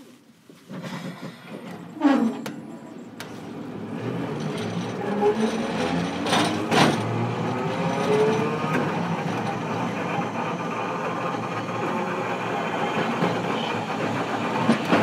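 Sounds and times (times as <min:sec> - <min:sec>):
wheels knocking over rail joints: 0:00.7 - 0:09.9, 0:13.0 - 0:15.0
tram clunk: 0:00.7 - 0:15.0
tram motor whine rising: 0:01.9 - 0:15.0.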